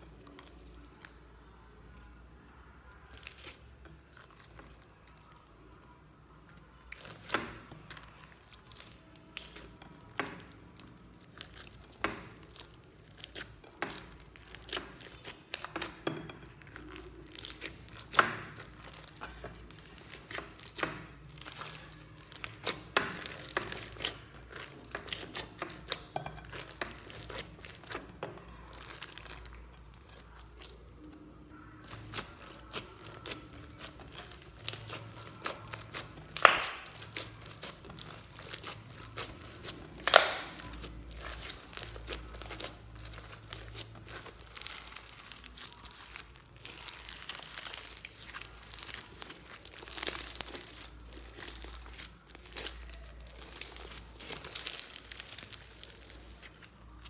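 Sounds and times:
wet crackles of kneaded slime: 0.0 - 57.0
sharp slime pops: 35.9 - 38.6, 39.2 - 41.9.

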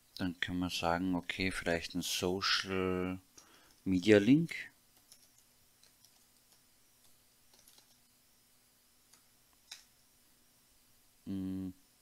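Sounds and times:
faint steady hum: 0.0 - 12.0
keyboard typing: 5.0 - 8.1.

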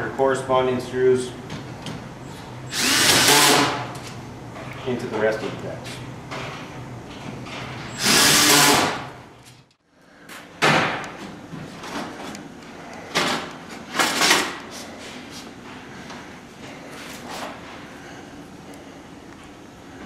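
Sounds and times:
cordless drill driving screw: 2.7 - 3.8, 8.0 - 9.0.

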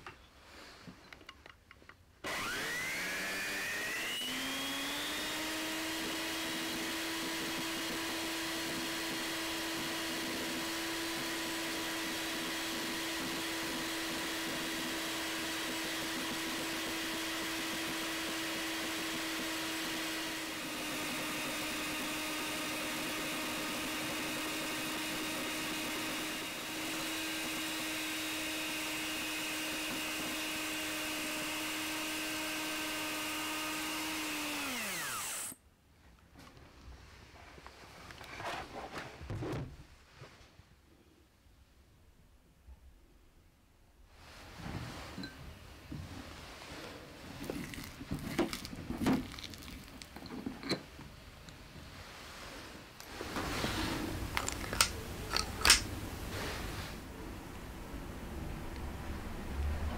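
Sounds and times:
electric hand mixer running: 2.2 - 35.6.

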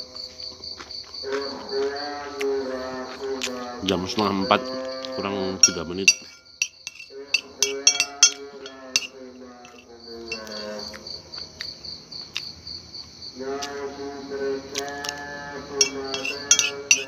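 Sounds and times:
crickets chirping: 0.0 - 17.0
chanting over loudspeaker: 1.2 - 6.2, 6.9 - 11.3, 13.4 - 17.0
spoon scraping ceramic plate: 5.5 - 10.8, 15.8 - 17.0.

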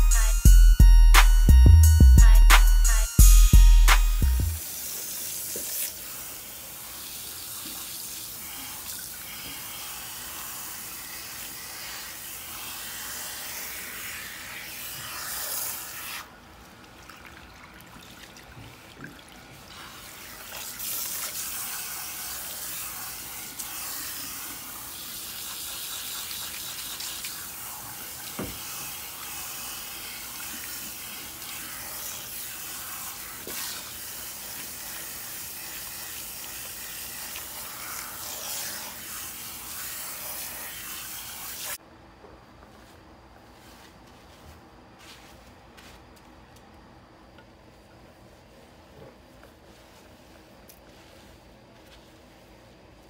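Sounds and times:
water spraying onto hair: 4.1 - 16.3, 19.6 - 41.8.

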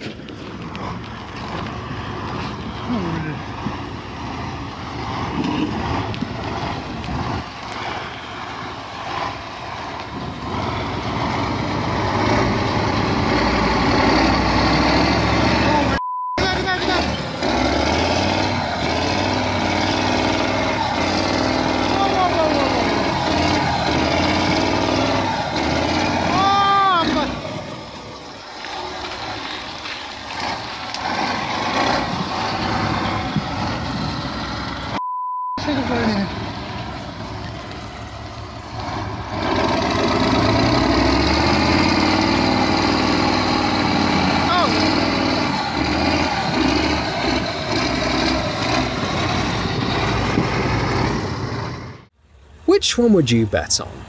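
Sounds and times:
truck diesel engine under load: 0.0 - 54.0.

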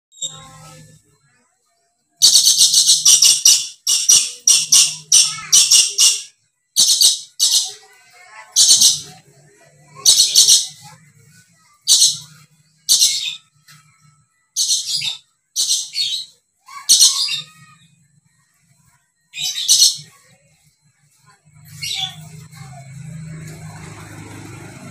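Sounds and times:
parrot screeching: 14.6 - 17.8.

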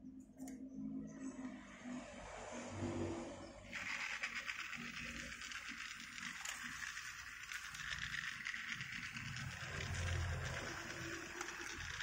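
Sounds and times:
toy train motor whirring: 3.6 - 12.0.

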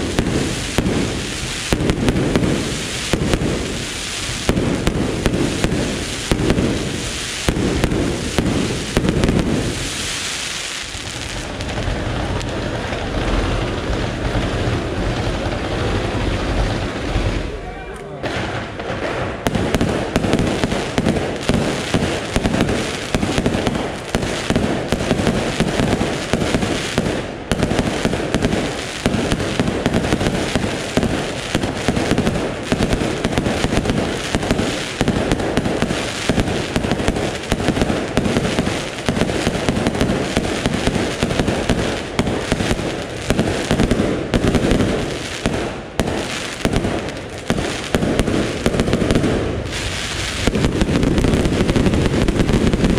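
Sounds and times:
fireworks bangs: 0.0 - 52.9.

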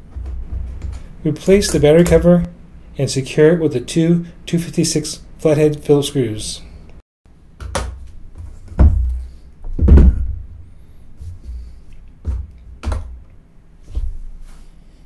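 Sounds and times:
metal objects thunking on mat: 7.6 - 10.4.

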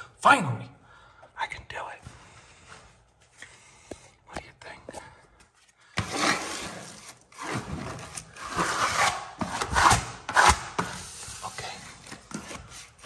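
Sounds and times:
plastic smoother scraping wallpaper: 6.0 - 13.0.

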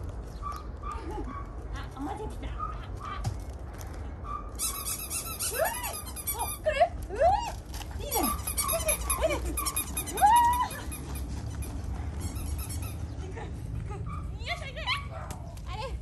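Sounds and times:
dog whining and yipping: 4.3 - 6.6, 8.1 - 13.1.

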